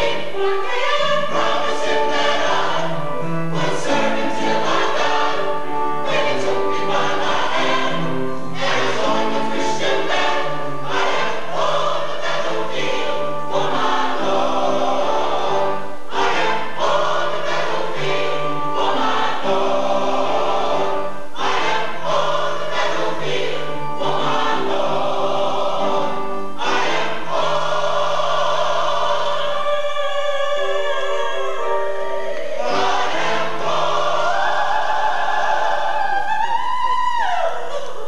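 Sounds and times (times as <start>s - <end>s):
mixed choir singing chords: 0.0s - 38.0s.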